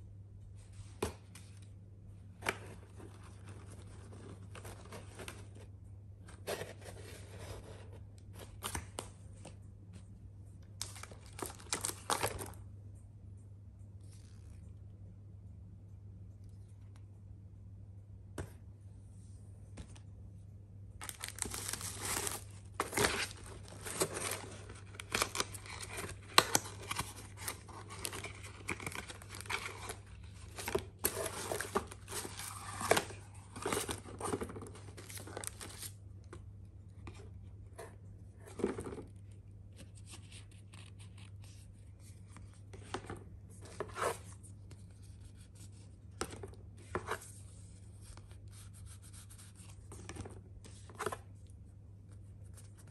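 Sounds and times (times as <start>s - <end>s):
paper and cardboard rustling: 2.4s - 5.7s, 6.3s - 8.9s, 21.0s - 36.0s.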